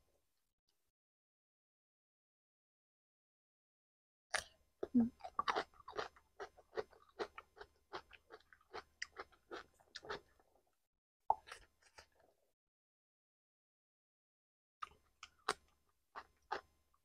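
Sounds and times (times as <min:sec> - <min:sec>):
person chewing: 0:05.2 - 0:10.5, 0:14.8 - 0:16.7.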